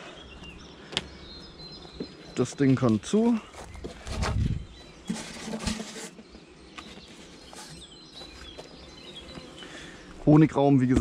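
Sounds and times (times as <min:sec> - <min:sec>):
faint birds chirping: 0:00.0 - 0:11.0
rustling: 0:02.8 - 0:09.7.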